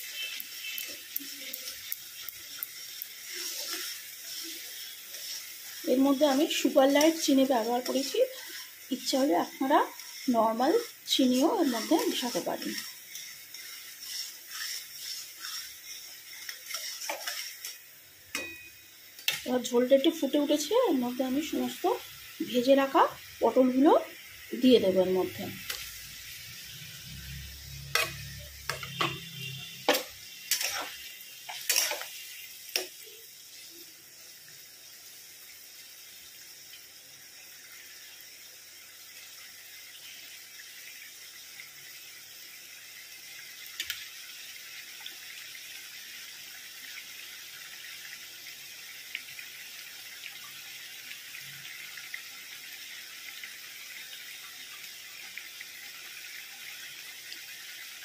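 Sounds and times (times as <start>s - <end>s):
utensils knocking against pan: 18.3s - 18.7s, 28.0s - 29.3s, 29.9s - 30.9s.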